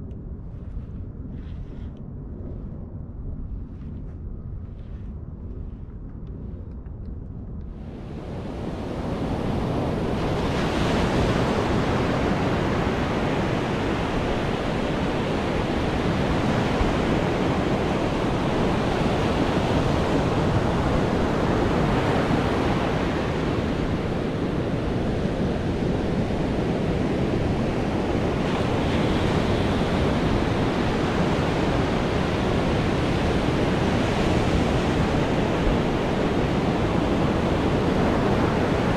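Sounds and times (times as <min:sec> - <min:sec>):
low wind: 0:00.0 - 0:38.9
ocean surf breaking: 0:08.7 - 0:38.9.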